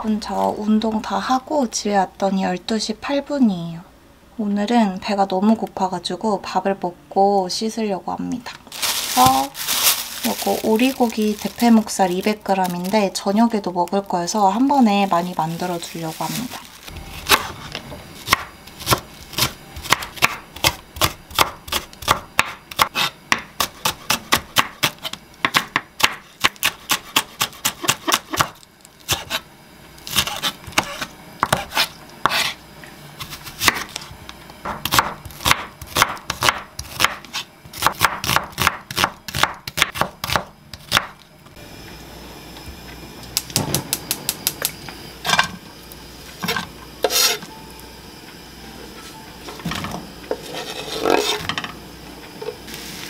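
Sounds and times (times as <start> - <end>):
knife chopping on wooden board: 17.3 - 17.7, 18.3 - 28.5, 30.1 - 32.6, 33.2 - 33.9, 34.7 - 41.2.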